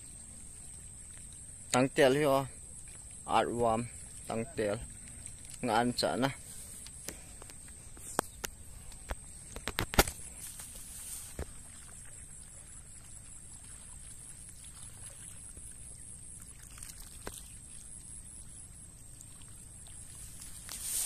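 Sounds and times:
high insect drone: 0.0s - 21.0s.

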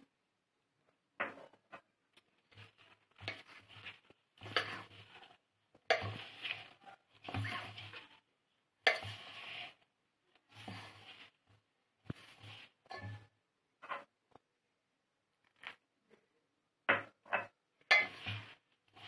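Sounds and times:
hand scraping dough in steel bowl: 1.3s - 14.1s, 17.4s - 19.0s.

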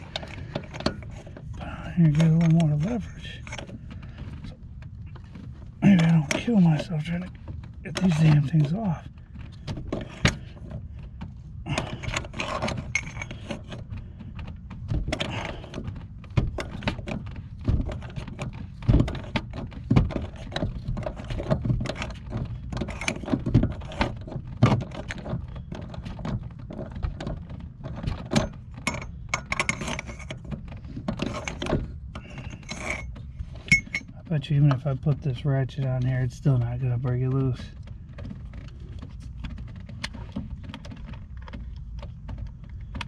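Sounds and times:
steady low rumble: 0.0s - 43.0s
metal tools clicking and clinking: 11.7s - 13.7s, 28.3s - 30.4s, 31.2s - 34.1s.

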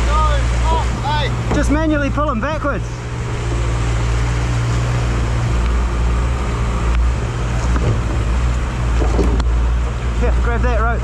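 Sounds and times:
boat engine idling: 0.0s - 11.0s
river rushing: 0.0s - 11.0s.

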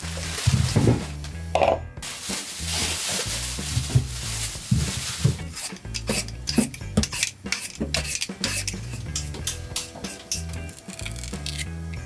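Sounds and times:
utensils clinking against dishes: 5.4s - 11.7s.

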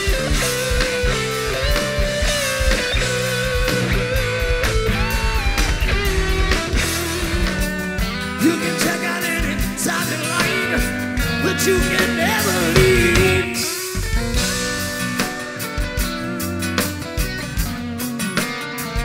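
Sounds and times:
electric and acoustic guitars: 0.0s - 19.0s
man singing: 8.3s - 14.0s.

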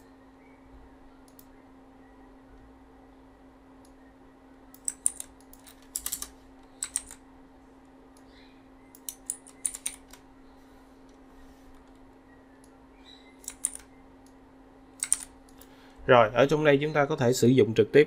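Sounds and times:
faint steady hum: 0.0s - 18.0s
keyboard typing: 4.7s - 7.2s, 8.9s - 10.2s, 13.4s - 14.4s, 15.0s - 15.7s.

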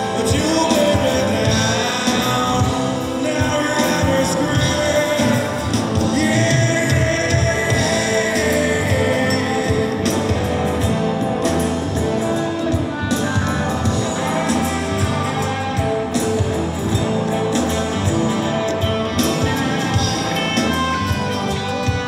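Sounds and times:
person singing: 0.0s - 11.1s
drums keeping a beat: 0.0s - 22.0s
strummed acoustic guitar: 0.0s - 22.0s.

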